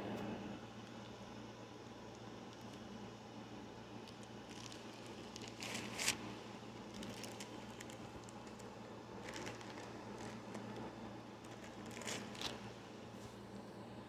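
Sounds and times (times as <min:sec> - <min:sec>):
sharp crackle: 0:03.9 - 0:12.7
rustling and crinkling: 0:03.9 - 0:13.4.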